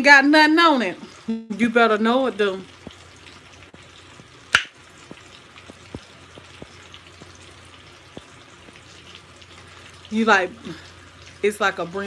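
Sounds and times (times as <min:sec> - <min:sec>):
faint crackling ticks: 0:05.0 - 0:07.4, 0:08.0 - 0:09.2.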